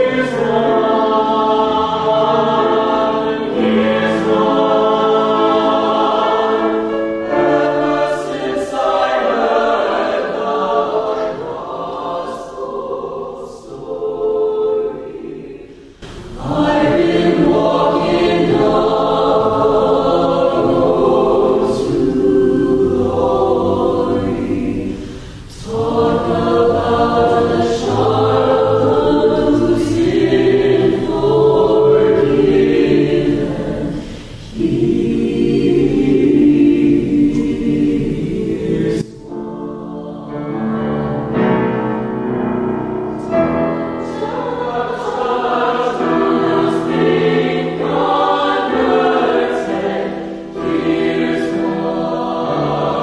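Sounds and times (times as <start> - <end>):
mixed choir singing: 0.0 - 53.0.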